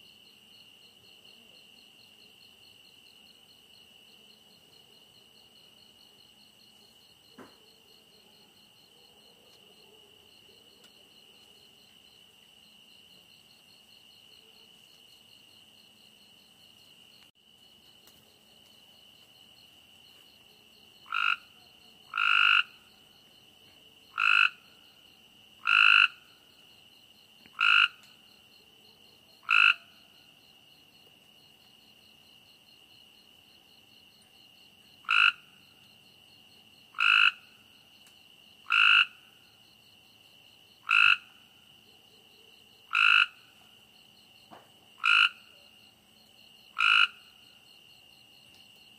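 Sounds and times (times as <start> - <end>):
night insects chirring: 0.0 - 48.9
frog calling: 21.0 - 22.9, 24.1 - 24.7, 25.6 - 26.3, 27.5 - 28.2, 29.4 - 30.0, 35.0 - 35.6, 36.9 - 37.6, 38.6 - 39.4, 40.8 - 41.4, 42.9 - 43.6, 45.0 - 45.6, 46.7 - 47.4.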